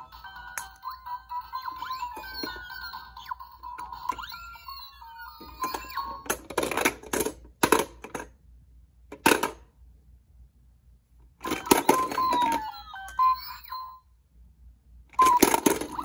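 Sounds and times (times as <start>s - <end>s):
electronic toy notes: 0.0s - 6.3s, 11.4s - 14.0s
plastic balls clattering in toy: 11.4s - 12.8s, 15.2s - 16.0s.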